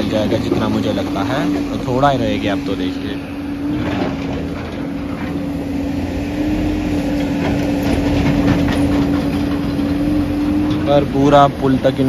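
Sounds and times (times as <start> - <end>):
excavator engine hum: 0.0 - 12.0
metal clanking and rattling: 3.6 - 5.6, 6.6 - 11.5.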